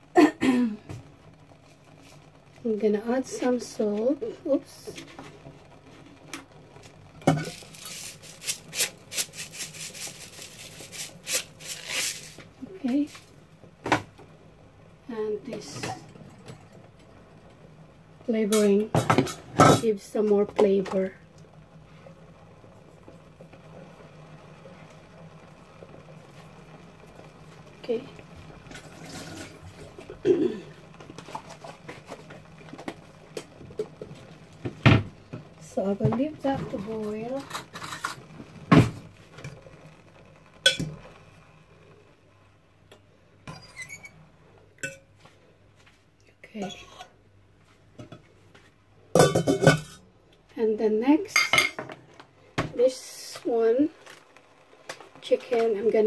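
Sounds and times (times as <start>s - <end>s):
salt grains hissing into water: 7.5s - 12.4s.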